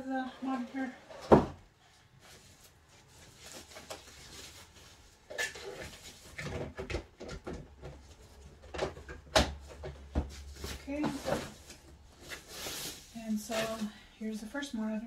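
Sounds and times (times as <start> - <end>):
plastic wrapping rustling: 2.2 - 6.5, 10.3 - 14.0.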